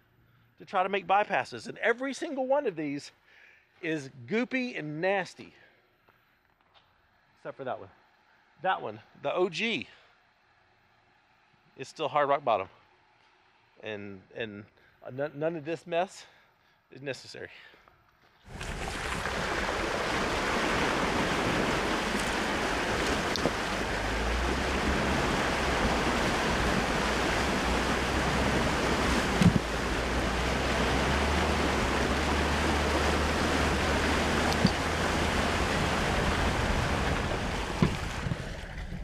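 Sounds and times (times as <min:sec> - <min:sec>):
tyres splashing through water: 0:18.5 - 0:39.0
low engine rumble: 0:20.0 - 0:39.0.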